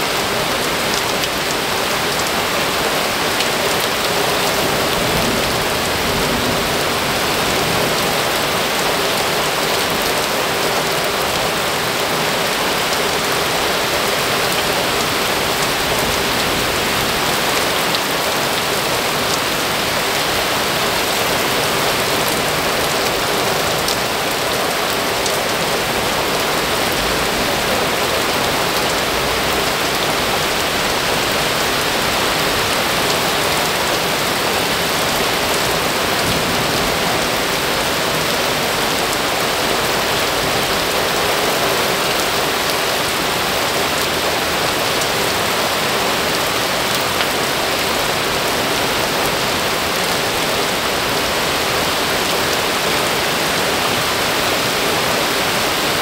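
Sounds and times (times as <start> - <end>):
heavy rain pouring: 0.0 - 56.0.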